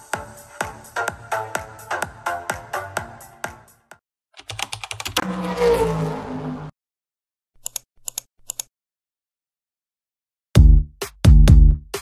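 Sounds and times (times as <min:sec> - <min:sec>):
electronic dance music: 0:00.0 - 0:03.8
rapid typing-like clicks: 0:04.4 - 0:05.2, 0:07.6 - 0:08.7.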